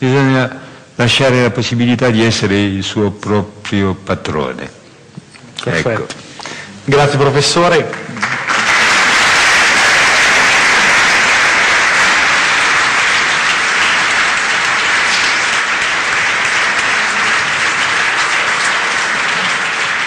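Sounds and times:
audience applauding: 7.8 - 20.0.

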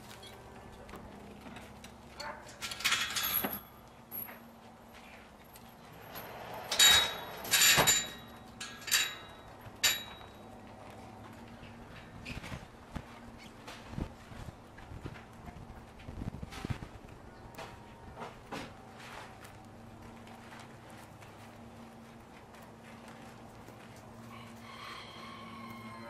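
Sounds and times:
metal gate clanking: 2.2 - 4.4, 6.0 - 10.4.

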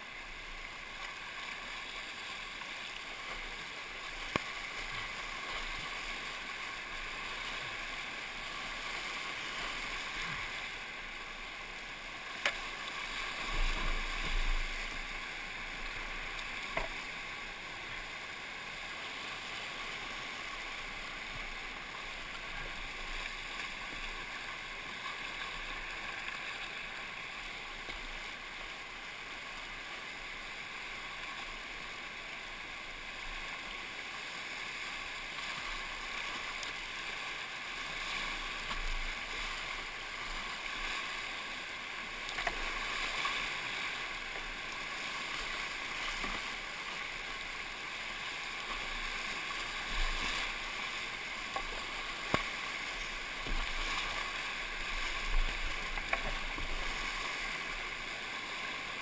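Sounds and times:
rushing whitewater: 0.0 - 59.0
water splashes: 0.0 - 59.0.

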